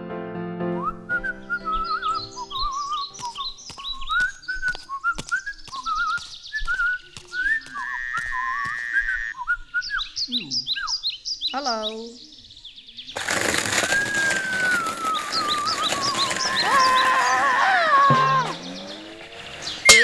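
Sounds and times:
person whistling a warbling tune: 0:00.8 - 0:10.0, 0:13.9 - 0:16.8
sharp clicks: 0:03.1 - 0:08.9.

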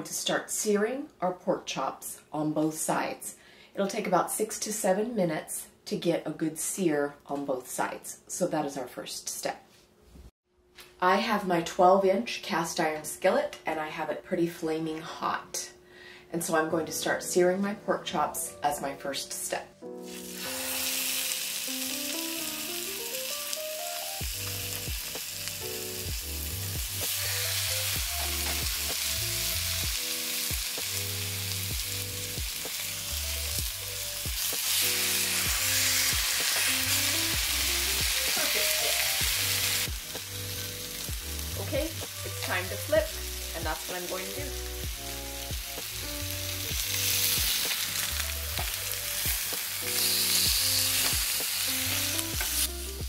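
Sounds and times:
light background music: 0:11.0 - 0:53.0
pork chops sizzling in skillet: 0:20.0 - 0:53.0.

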